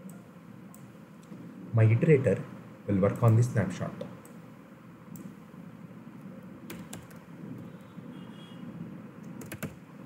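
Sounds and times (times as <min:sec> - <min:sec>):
faint room noise: 0:00.0 - 0:10.0
computer keyboard keystrokes: 0:06.6 - 0:07.2, 0:09.2 - 0:09.8.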